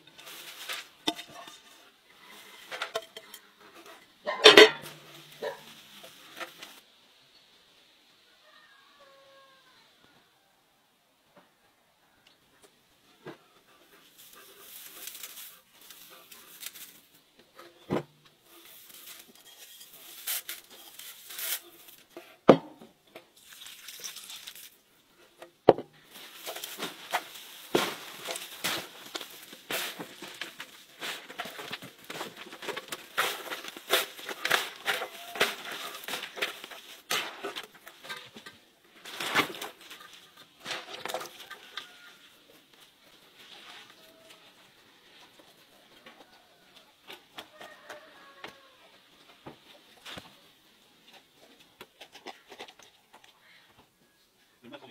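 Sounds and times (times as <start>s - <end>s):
hands mixing shredded vegetables: 26.1s - 38.1s.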